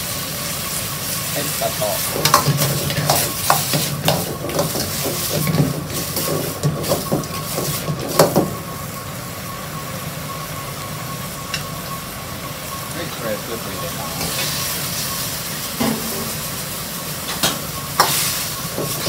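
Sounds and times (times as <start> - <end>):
sizzling hiss: 11.2 - 19.0.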